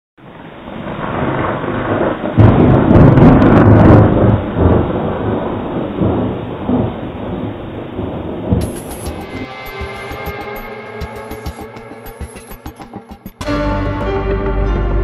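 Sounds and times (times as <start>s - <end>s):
thunder clap and rumble: 0.2s - 11.6s.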